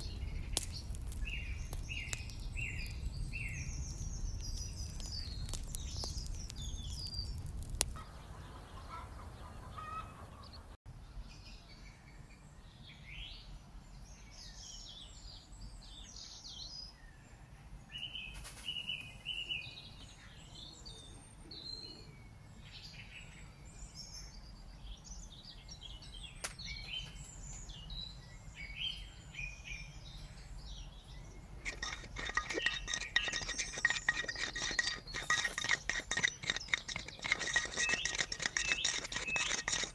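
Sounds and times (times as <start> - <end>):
birds chirping: 0.0 - 10.8, 23.9 - 39.9
rapid clinking and rattling: 31.6 - 39.9.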